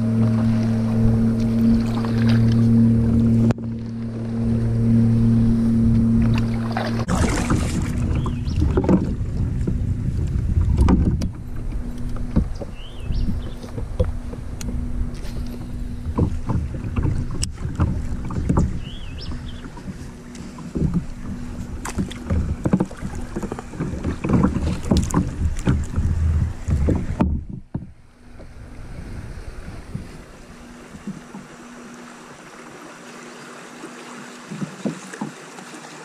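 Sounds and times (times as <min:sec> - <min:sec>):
rush of river current: 0:00.0 - 0:27.3, 0:27.9 - 0:36.0
wind buffeting microphone: 0:00.0 - 0:31.8
water slapping against kayak: 0:00.0 - 0:36.0.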